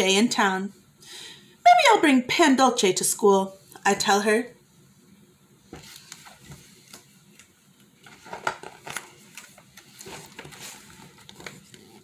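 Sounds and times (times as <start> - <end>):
book pages turning: 5.7 - 12.0.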